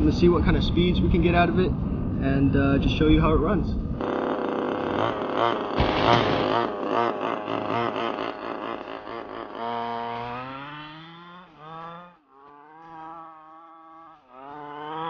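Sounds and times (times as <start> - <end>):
model car engine revving: 4.0 - 15.0.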